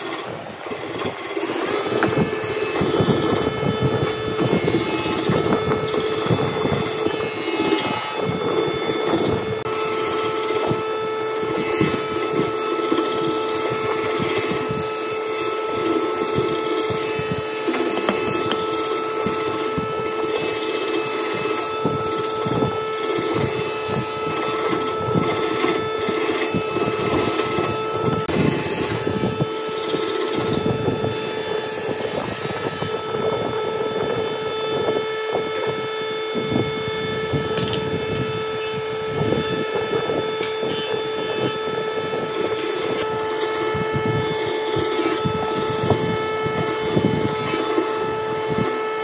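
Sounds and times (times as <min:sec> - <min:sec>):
power tool motor humming: 0:00.0 - 0:49.0
wood scraping and knocking: 0:11.5 - 0:21.6.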